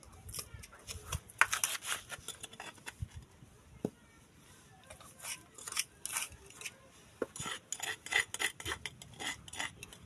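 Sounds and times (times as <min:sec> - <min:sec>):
metal spoon scraping bowl: 0:05.0 - 0:10.0.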